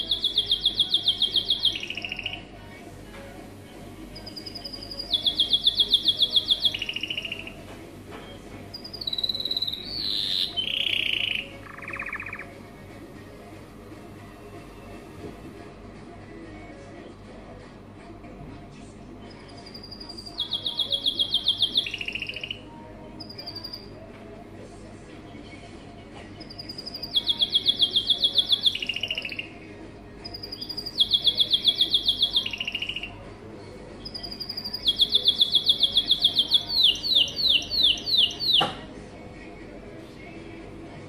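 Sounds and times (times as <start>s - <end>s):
canary singing trills: 0.0s - 2.7s, 4.0s - 12.8s, 19.2s - 24.0s, 26.4s - 33.3s, 33.9s - 38.8s.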